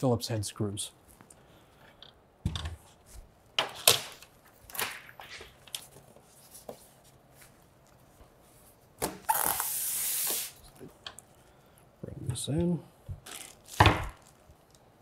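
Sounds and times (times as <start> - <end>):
plastic packaging crinkling: 13.2 - 14.8.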